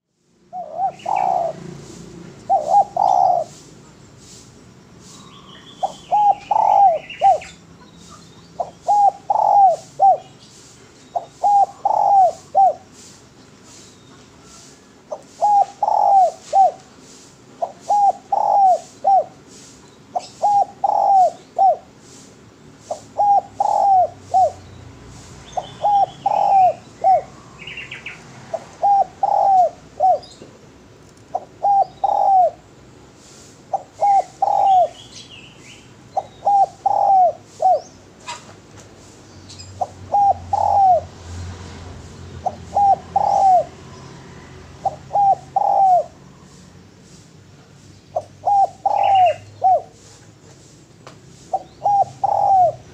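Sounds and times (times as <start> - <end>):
dove cooing: 0.5 - 3.8, 5.8 - 10.4, 11.1 - 13.2, 14.4 - 22.2, 22.8 - 24.7, 25.5 - 30.5, 31.2 - 35.2, 35.9 - 38.6, 39.8 - 46.7, 48.1 - 50.4, 51.5 - 52.9
faint bird chirping: 0.5 - 41.6, 42.2 - 52.9.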